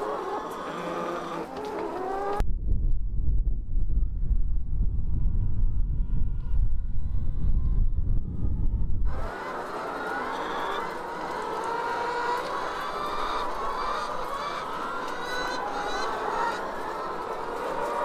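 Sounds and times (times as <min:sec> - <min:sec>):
hens clucking and cackling: 0:00.0 - 0:02.4, 0:09.1 - 0:18.0.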